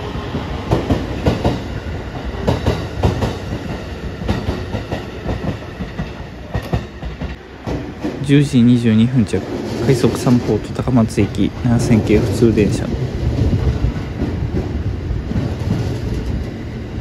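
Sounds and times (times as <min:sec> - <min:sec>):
electric train rumble: 0:00.0 - 0:17.0
wheels clacking over rail joints: 0:00.3 - 0:08.5.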